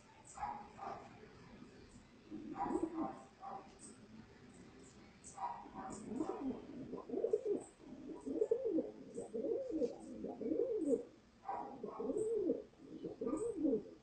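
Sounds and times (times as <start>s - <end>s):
pigeon cooing: 2.3s - 3.2s, 5.6s - 14.0s.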